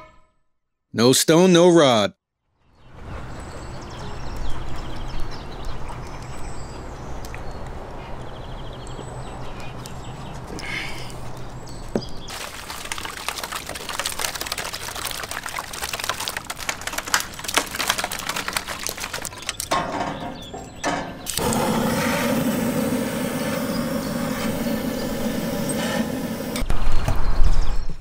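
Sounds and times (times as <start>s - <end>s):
gas torch roaring: 21.2s - 26.7s.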